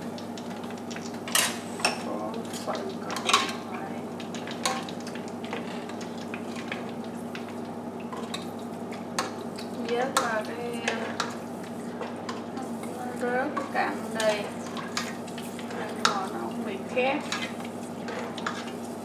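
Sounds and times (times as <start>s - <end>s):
wings sizzling in oil: 0.0s - 19.0s
utensil scraping metal pot: 16.9s - 18.8s.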